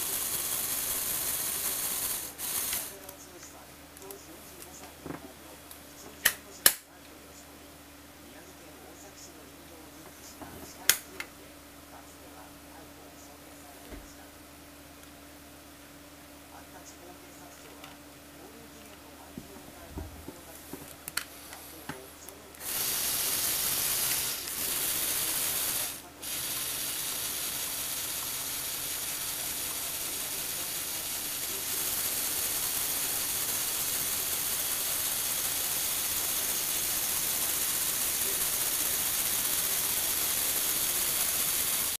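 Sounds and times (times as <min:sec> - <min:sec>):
electric motors and gears running: 0:00.0 - 0:03.3, 0:17.5 - 0:42.0.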